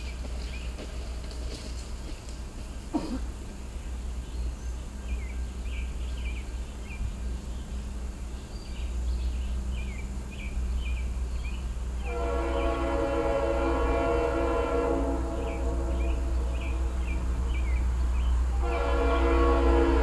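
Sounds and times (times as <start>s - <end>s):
low steady rumble: 0.0s - 20.0s
bird chirping: 3.6s - 12.8s, 15.2s - 19.4s
locomotive horn blowing: 12.0s - 17.3s, 18.5s - 20.0s.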